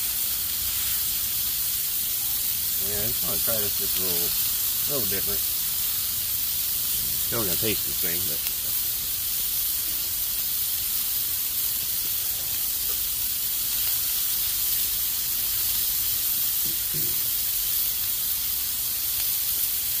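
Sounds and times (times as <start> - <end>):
burger patties sizzling on griddle: 0.0 - 20.0.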